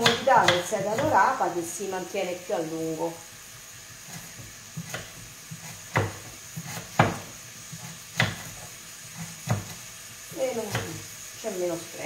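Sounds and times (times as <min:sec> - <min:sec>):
knife knocking on cutting board: 0:05.9 - 0:06.3, 0:06.9 - 0:07.3.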